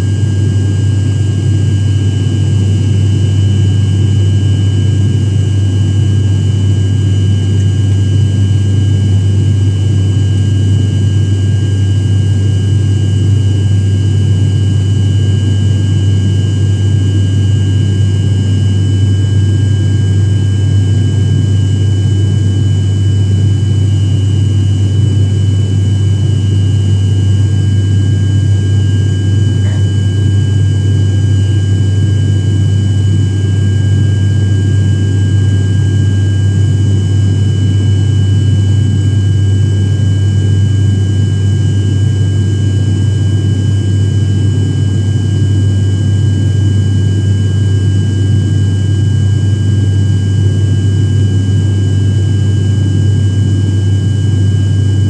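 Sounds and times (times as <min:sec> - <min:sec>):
low engine drone: 0:00.0 - 0:55.0
thin high whine: 0:29.2 - 0:30.6.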